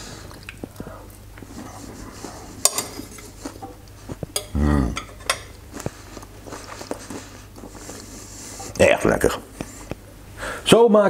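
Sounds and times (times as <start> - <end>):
cutlery scraping on plate: 2.6 - 5.9
man humming mmm: 4.4 - 5.2.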